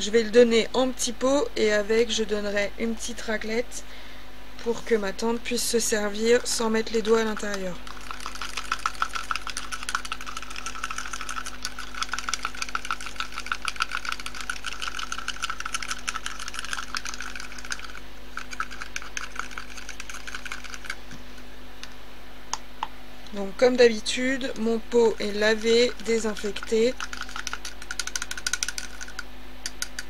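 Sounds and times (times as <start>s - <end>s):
whisk clicking against plastic cup: 6.4s - 21.0s, 25.2s - 30.0s.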